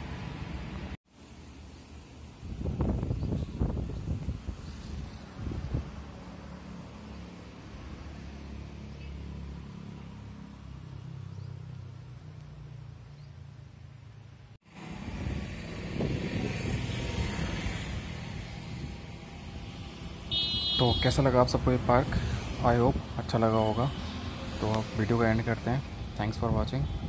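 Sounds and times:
gusty wind noise: 2.4s - 6.3s, 14.7s - 20.4s, 26.0s - 27.0s.

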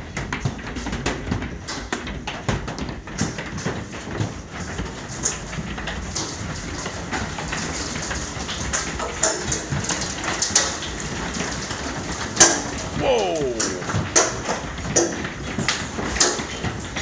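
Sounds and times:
hailstones hitting window: 0.1s - 17.0s
steady rain hiss: 12.4s - 14.3s.

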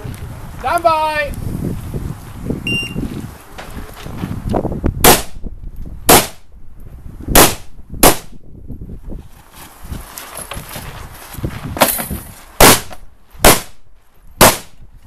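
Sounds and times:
rifle shots: 5.0s - 5.4s, 6.1s - 6.4s, 7.4s - 8.3s, 12.6s - 13.8s, 14.4s - 14.8s.

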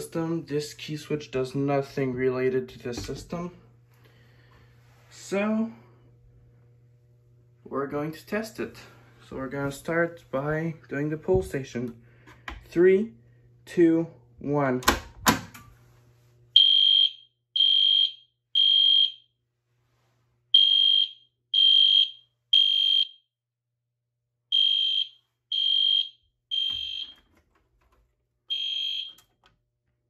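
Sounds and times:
fire alarm horn beeping: 16.6s - 19.3s, 20.5s - 23.3s, 24.5s - 27.4s, 28.5s - 29.4s.

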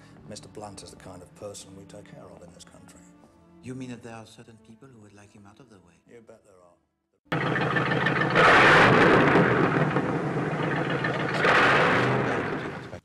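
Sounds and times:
cars driving past: 7.3s - 13.0s.

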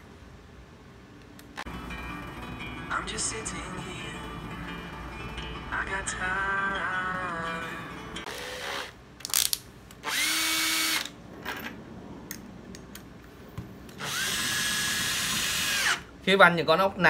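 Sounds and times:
cordless drill driving a screw: 8.3s - 11.1s, 14.0s - 16.0s.

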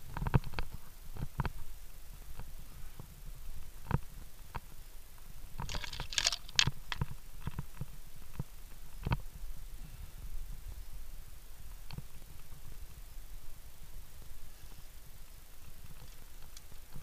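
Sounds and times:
metallic jingling: 5.7s - 6.7s
carabiners clinking on steel cable: 5.7s - 7.0s.

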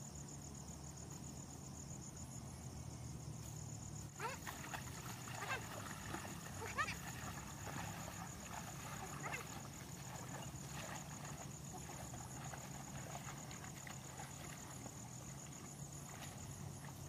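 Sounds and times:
sloshes and squelches in mud: 4.0s - 17.0s.

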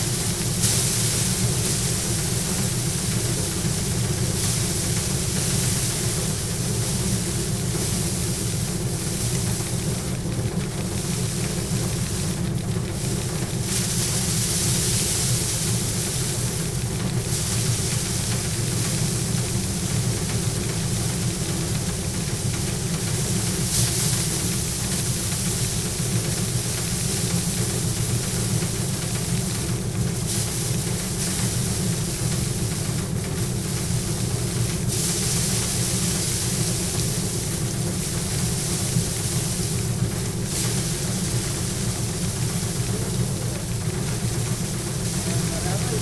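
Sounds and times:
rushing hiss of grain stripping: 0.0s - 46.0s
thresher machine humming: 0.0s - 46.0s.

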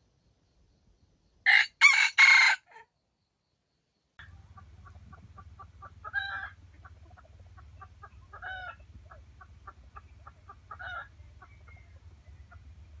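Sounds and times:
louder hen calls: 1.5s - 2.8s, 4.2s - 13.0s
hen clucking: 4.2s - 13.0s.

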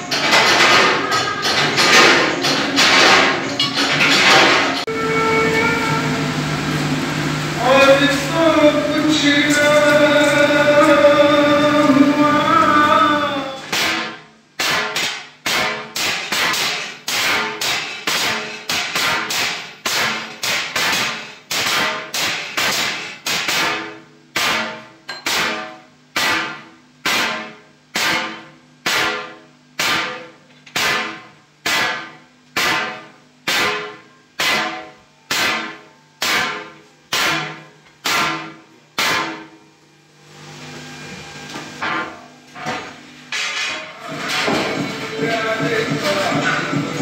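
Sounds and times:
hammer striking steel plate: 0.0s - 5.0s, 13.7s - 39.6s, 41.8s - 47.0s.

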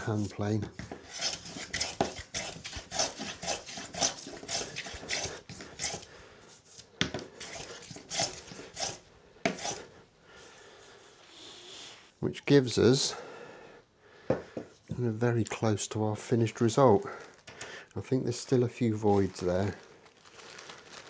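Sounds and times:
hand plane shaving wood: 0.1s - 6.1s, 7.4s - 9.8s.

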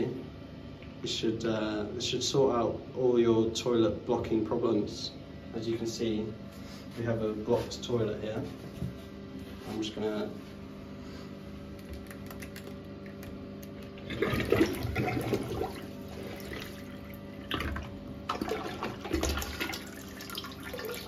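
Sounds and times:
water sloshing and gurgling: 13.8s - 21.0s
plunger pumping in toilet: 13.9s - 21.0s.

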